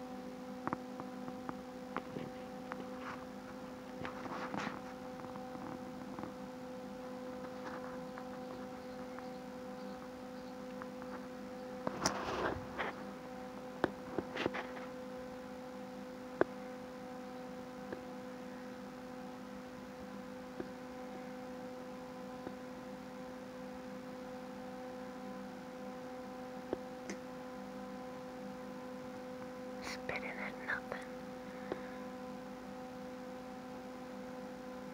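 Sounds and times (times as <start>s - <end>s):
steady low hum: 0.0s - 34.9s
kitten rustling on carpet: 11.9s - 13.1s.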